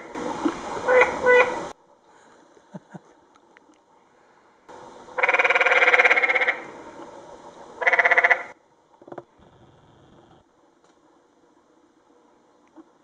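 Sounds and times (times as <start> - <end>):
frog trilling: 7.8 - 8.5.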